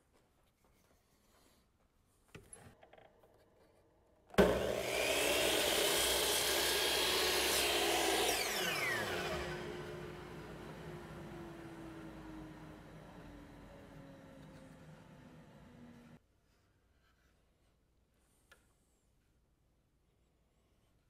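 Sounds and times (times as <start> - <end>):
power saw cutting wood: 4.4 - 16.2.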